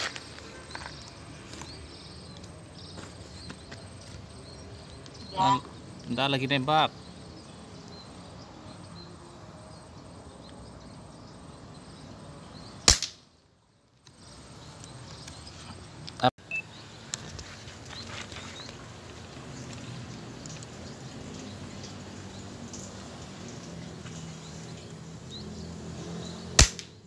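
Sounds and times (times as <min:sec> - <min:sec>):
air rifle cracks: 0:12.9 - 0:13.2, 0:26.6 - 0:27.0.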